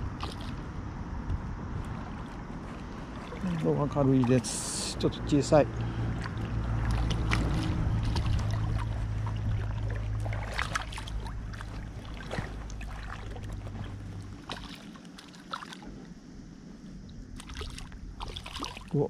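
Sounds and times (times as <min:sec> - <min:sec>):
fish splashing: 0:00.0 - 0:00.7, 0:02.8 - 0:16.0, 0:17.3 - 0:19.0.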